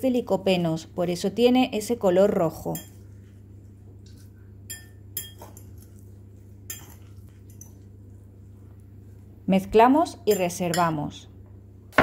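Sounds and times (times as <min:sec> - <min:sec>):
fork clinking glass bowl: 0:02.7 - 0:03.0, 0:04.7 - 0:06.0, 0:06.7 - 0:07.8, 0:10.3 - 0:11.0.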